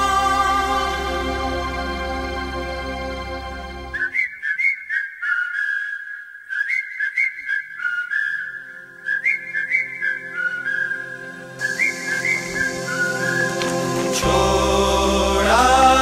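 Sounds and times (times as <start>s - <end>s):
soft backing music: 0.0s - 4.0s, 11.1s - 16.0s
whistled melody: 0.0s - 16.0s.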